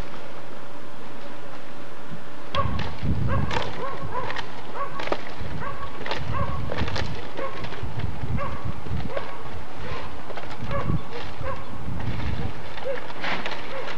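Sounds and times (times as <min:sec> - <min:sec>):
sharp knocks and splintering cracks: 0:02.5 - 0:08.3, 0:08.9 - 0:13.9
shingles being torn off a roof: 0:02.6 - 0:13.9.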